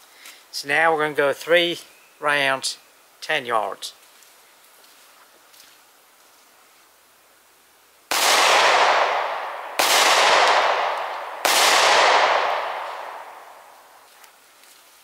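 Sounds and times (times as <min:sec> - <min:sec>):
pistol shots: 0:08.1 - 0:13.9.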